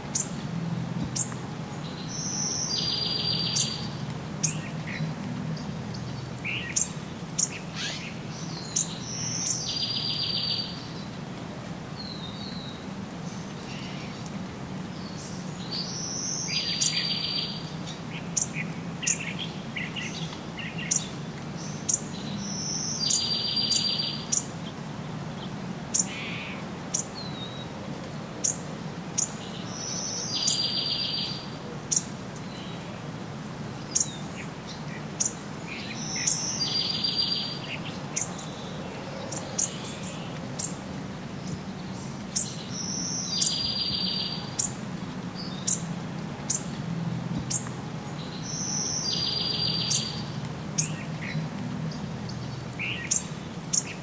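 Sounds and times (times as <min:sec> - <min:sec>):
bird song with buzzy trill: 0:41.9 - 0:44.8.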